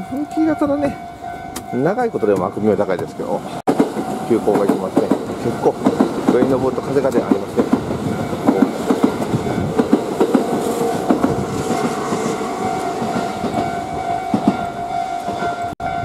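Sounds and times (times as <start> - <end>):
steady high tone: 0.0 - 16.0
train wheels clacking over rail joints: 3.7 - 15.7.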